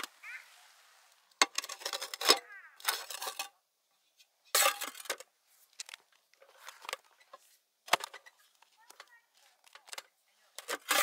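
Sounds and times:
lid rustling off pan: 1.4 - 3.5.

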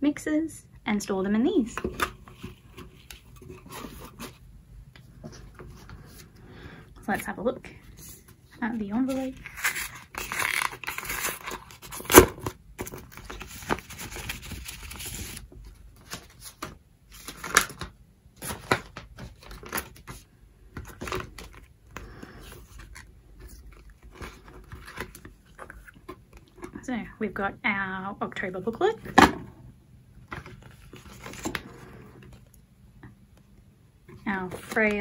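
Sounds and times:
papers rustling: 7.1 - 26.8, 30.3 - 32.6, 34.3 - 35.0
paper envelope tearing: 9.1 - 15.4.

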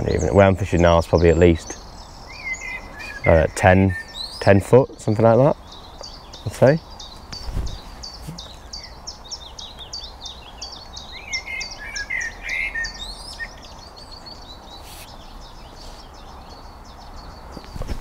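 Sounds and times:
low background noise: 0.0 - 18.0
small birds chirping: 0.0 - 18.0
bird warbling call: 1.1 - 18.0.

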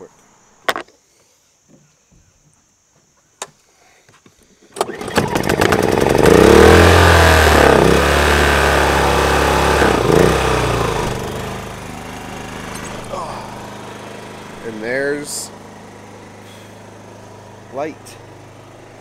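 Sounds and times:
generator engine running: 4.8 - 19.0.

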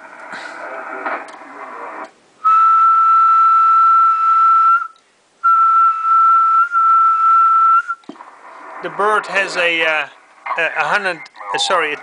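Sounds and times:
radio receiver hiss: 0.0 - 2.5, 6.6 - 12.0
person whistling a steady note: 2.4 - 8.0.

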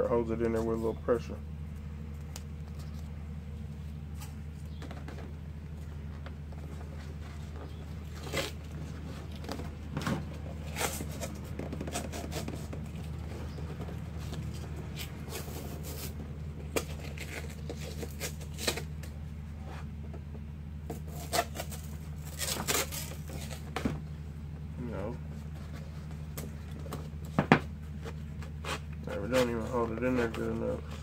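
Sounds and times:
steady low hum: 0.0 - 31.0
cardboard and tape rustling: 0.2 - 24.2, 24.8 - 31.0.

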